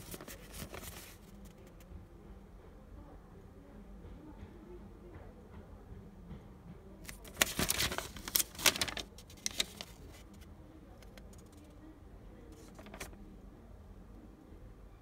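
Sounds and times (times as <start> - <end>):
paper leaflet rustling and crackling: 0.0 - 1.8, 7.1 - 10.4, 12.5 - 13.2.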